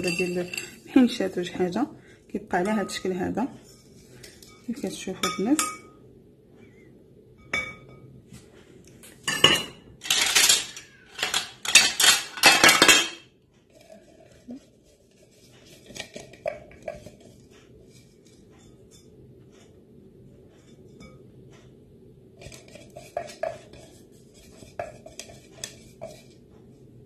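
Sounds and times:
spoon scraping plastic bowl: 0.0 - 1.2, 22.4 - 26.4.

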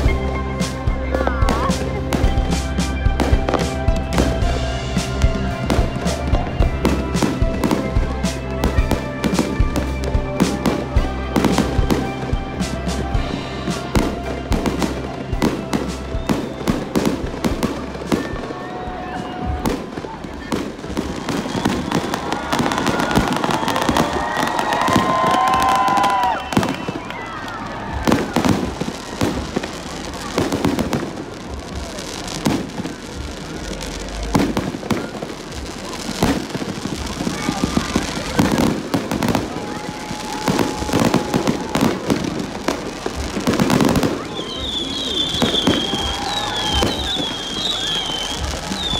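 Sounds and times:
fireworks bangs and crackles: 0.0 - 48.9
music playing: 0.0 - 48.9.

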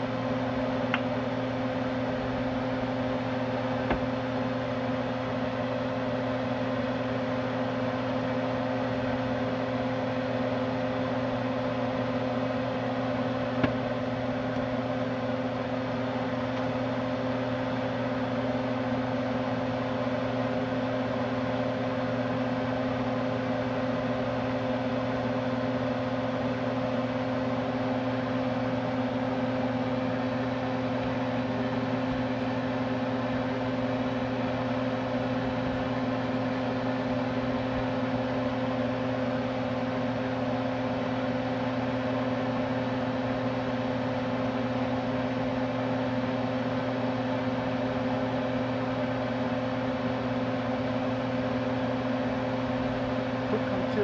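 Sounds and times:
electric motor hum: 0.0 - 7.3, 8.0 - 25.4.

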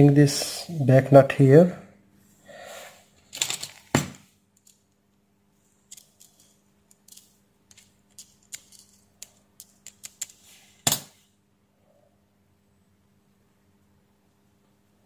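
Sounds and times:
small metal parts clicking: 3.3 - 3.9, 4.6 - 5.0, 5.9 - 11.2.

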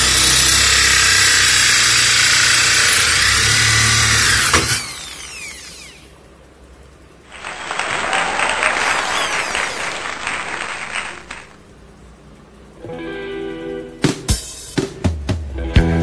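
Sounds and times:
electric drill boring wood: 0.0 - 6.1.

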